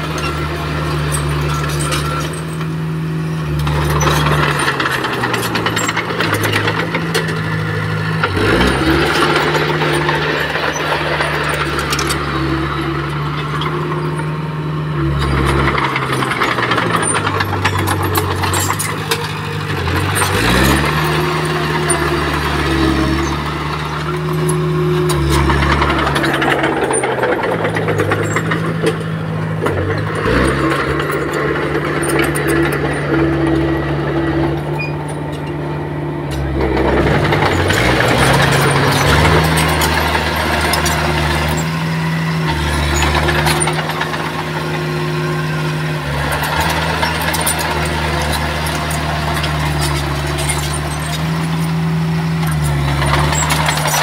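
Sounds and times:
bulldozer diesel engine revving: 0:00.0 - 0:54.0
metallic rattling: 0:15.0 - 0:35.7, 0:36.3 - 0:54.0.

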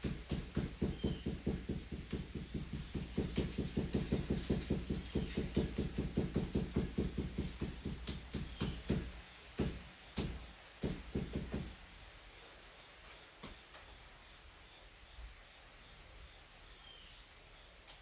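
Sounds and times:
clay being pounded by hand: 0:00.0 - 0:11.8.

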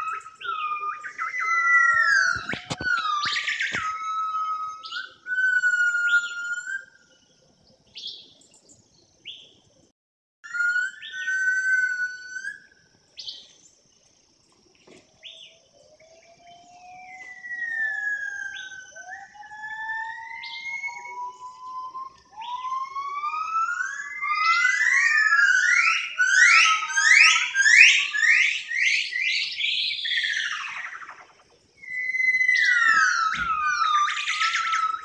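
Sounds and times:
slowly rising whistle-like tone: 0:00.0 - 0:07.1, 0:10.4 - 0:13.4, 0:15.2 - 0:35.0
wild birds calling: 0:00.0 - 0:09.5, 0:14.8 - 0:35.0.

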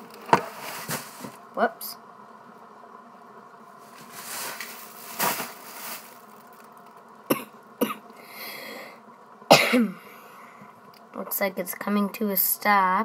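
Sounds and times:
boy coughing: 0:07.3 - 0:08.0, 0:09.5 - 0:10.0.

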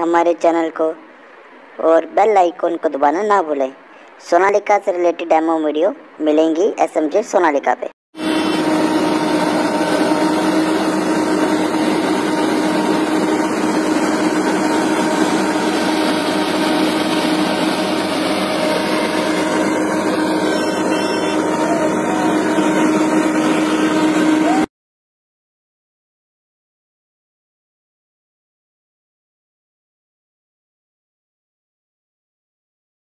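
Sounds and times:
tractor engine running: 0:08.2 - 0:24.6
harvester engine and machinery: 0:08.2 - 0:24.7.

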